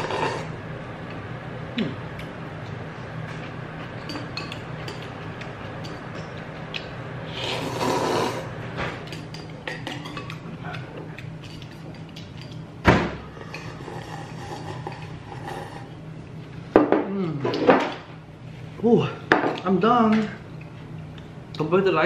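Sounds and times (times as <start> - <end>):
steady low hum: 0.0 - 22.0
slurping and chewing: 6.3 - 8.5.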